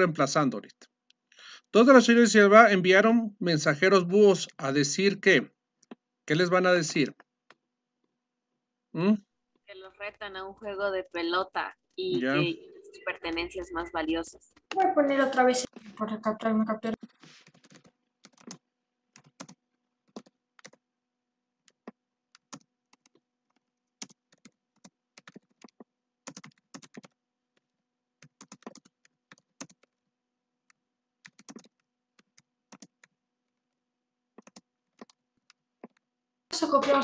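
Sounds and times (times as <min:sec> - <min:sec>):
typing on a keyboard: 0:17.0 - 0:20.9, 0:21.6 - 0:33.7, 0:34.3 - 0:36.1.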